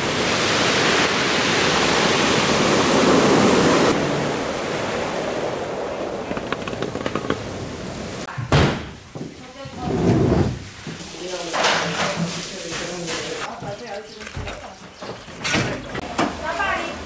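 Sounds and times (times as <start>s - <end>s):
ocean surf breaking: 0.0s - 8.3s
water on a pebble beach: 0.0s - 8.3s, 11.0s - 13.8s.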